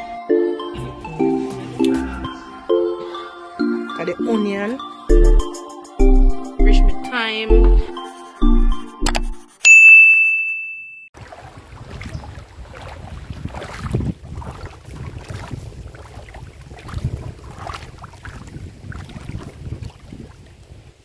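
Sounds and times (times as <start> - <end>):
wind buffeting microphone: 11.2 - 21.0.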